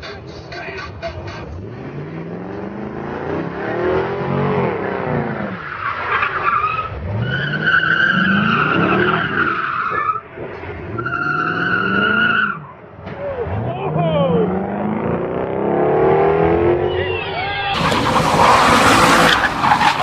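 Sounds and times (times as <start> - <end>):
car engine revving hard: 1.4 - 5.6, 13.4 - 16.9, 17.7 - 20.0
tyre squeal: 5.4 - 10.2, 11.0 - 13.4, 16.9 - 20.0.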